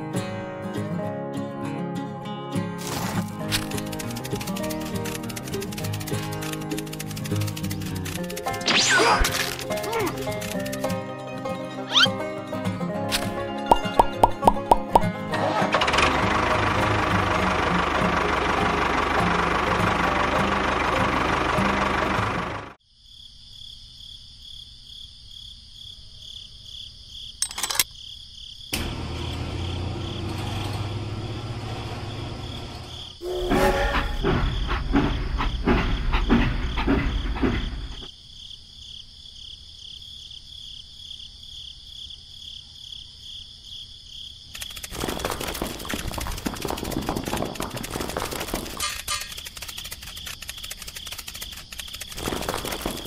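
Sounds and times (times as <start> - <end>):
mechanical running and clattering: 2.8 - 11.0, 27.4 - 27.9, 44.5 - 53.0
motor running: 2.8 - 11.0, 15.6 - 22.8, 28.8 - 33.2, 44.6 - 53.0
rough mechanical noise: 2.8 - 11.0, 15.3 - 22.8, 28.8 - 38.1, 44.5 - 53.0
insects trilling: 2.8 - 11.1, 22.8 - 53.0.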